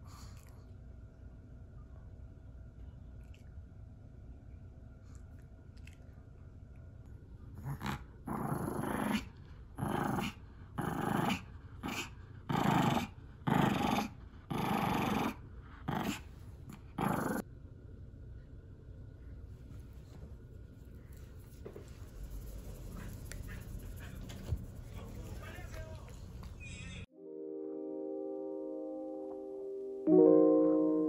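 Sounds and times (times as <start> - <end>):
small dog play-growling: 7.5 - 17.4.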